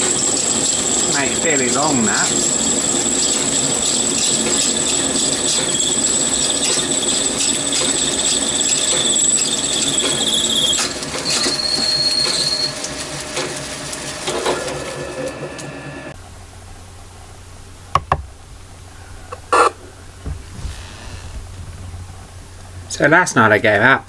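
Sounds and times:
cutting tool squealing: 0.0s - 13.0s, 19.3s - 19.8s
lathe running: 0.0s - 23.8s.

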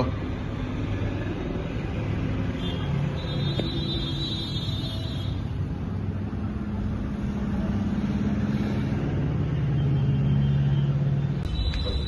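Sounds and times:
low mechanical drone: 5.4s - 12.0s.

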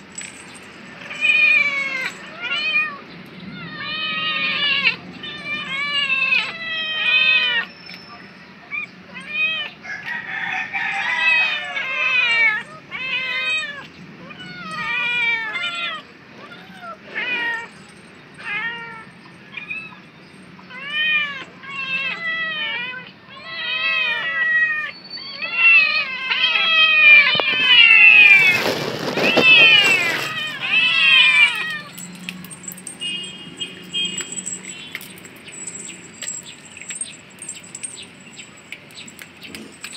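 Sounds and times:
kittens meowing: 1.0s - 7.8s, 8.7s - 38.0s
rustling noise: 27.3s - 39.9s.

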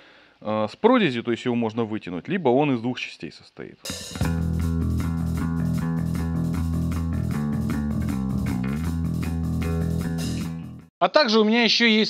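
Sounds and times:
instrumental rock music: 3.9s - 10.9s.

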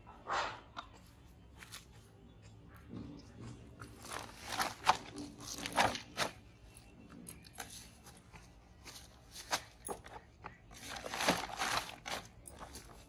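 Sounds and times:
scraping and crunching containers: 2.9s - 13.0s.

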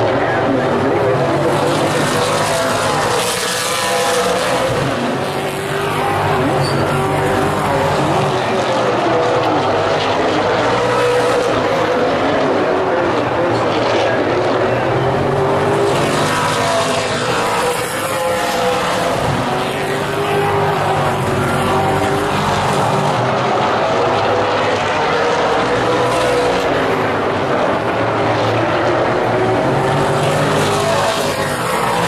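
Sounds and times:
race car engines passing: 0.0s - 32.0s.

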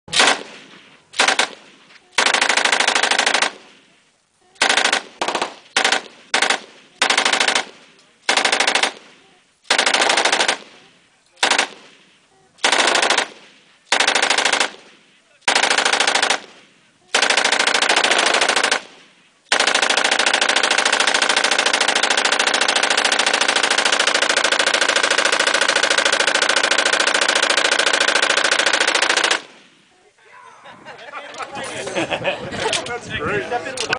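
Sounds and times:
machine gun automatic fire: 0.1s - 0.6s, 1.2s - 3.7s, 4.6s - 9.1s, 9.7s - 11.9s, 12.6s - 29.6s.

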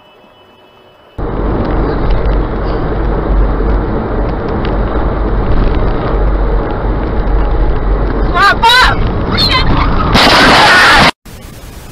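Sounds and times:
engine and tyre rumble: 0.0s - 10.2s
wind noise: 1.2s - 10.2s.

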